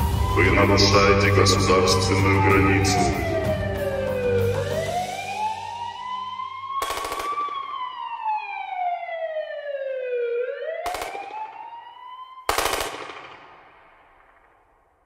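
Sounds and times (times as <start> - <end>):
siren wailing: 0.0 - 13.3
automatic gunfire bursts: 6.8 - 7.6, 10.9 - 11.3, 12.5 - 13.6.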